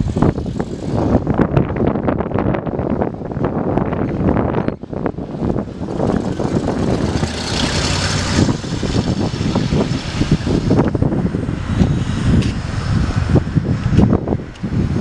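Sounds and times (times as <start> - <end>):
car engine rumble driving past: 5.3 - 13.9.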